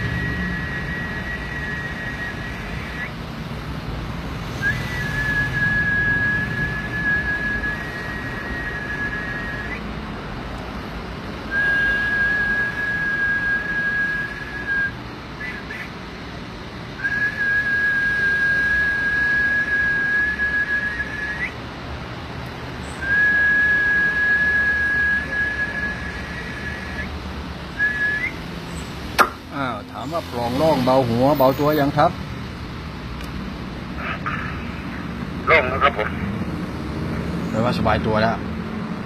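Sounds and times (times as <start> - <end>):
high-pitched whistled notes: 0.0 - 3.2, 4.6 - 9.8, 11.5 - 15.9, 22.9 - 27.1, 27.8 - 28.4.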